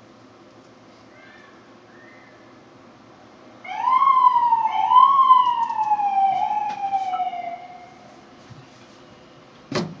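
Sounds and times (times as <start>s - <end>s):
siren wailing: 3.6s - 8.2s.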